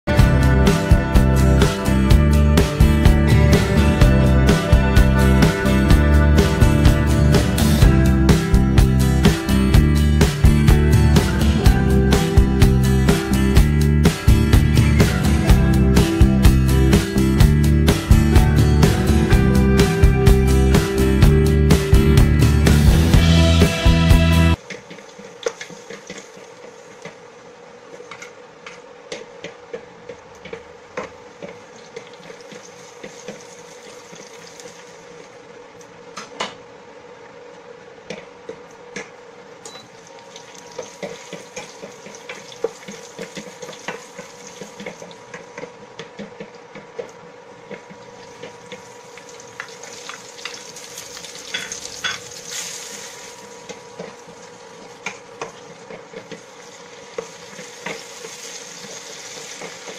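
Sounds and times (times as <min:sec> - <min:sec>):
vegetables sizzling in oil: 0:40.4 - 0:45.2, 0:48.3 - 0:59.9.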